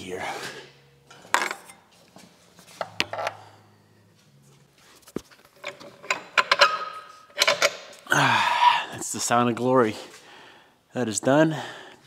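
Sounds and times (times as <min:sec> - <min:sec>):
metal parts knocking and clanking: 0:05.4 - 0:07.9.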